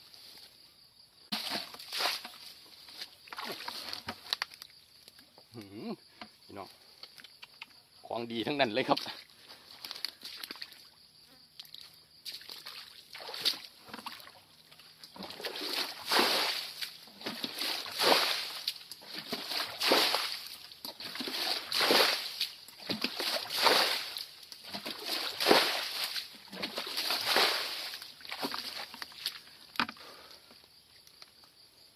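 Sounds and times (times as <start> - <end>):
bucket of water tipped out: 1.3 - 4.6, 13.2 - 14.4, 15.1 - 30.1
muddy water splashing into net: 1.3 - 4.6, 9.8 - 10.9, 11.7 - 29.6.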